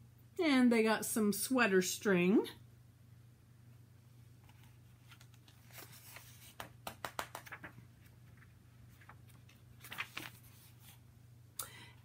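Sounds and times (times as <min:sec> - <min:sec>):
book pages rustling: 0:04.4 - 0:11.0.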